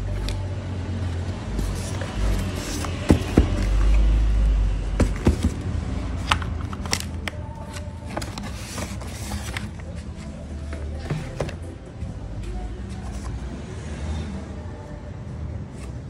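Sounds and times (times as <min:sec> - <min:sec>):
packaging knocks and taps: 0:02.7 - 0:04.0, 0:05.0 - 0:05.6.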